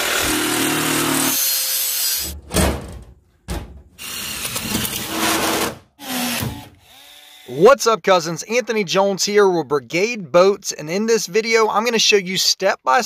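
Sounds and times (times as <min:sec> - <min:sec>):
power tools cutting sheet metal: 0:00.0 - 0:02.4, 0:04.0 - 0:07.6.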